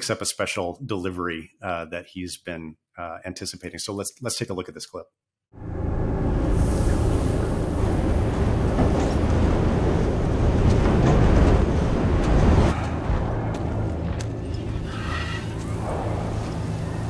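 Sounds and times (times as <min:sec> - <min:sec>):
low rumble: 0:05.6 - 0:17.0
wind and blowing dust: 0:05.7 - 0:17.0.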